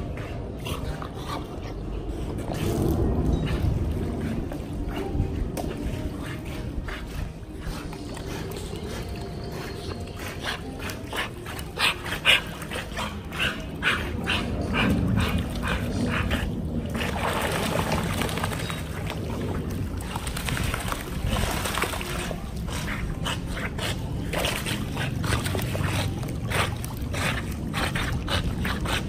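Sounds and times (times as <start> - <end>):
splashing water: 7.9 - 29.0.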